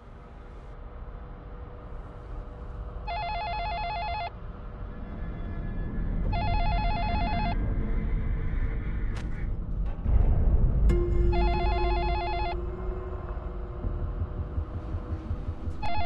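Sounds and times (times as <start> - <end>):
telephone ringing: 3.1 - 4.3, 6.3 - 7.6, 11.4 - 12.6
low rumble: 4.4 - 16.0.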